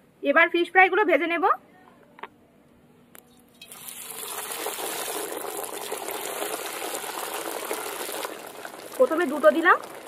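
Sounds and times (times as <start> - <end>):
fish sizzling in hot oil: 3.6 - 10.0.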